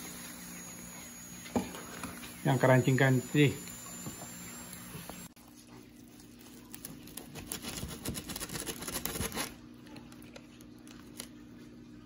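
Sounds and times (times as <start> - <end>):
knife cutting crackling pork skin: 6.4 - 9.6.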